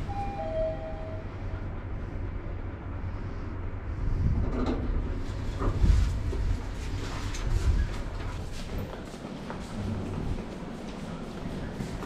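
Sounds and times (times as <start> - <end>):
lift car low rumble: 0.0 - 12.0
two-note descending chime: 0.1 - 1.3.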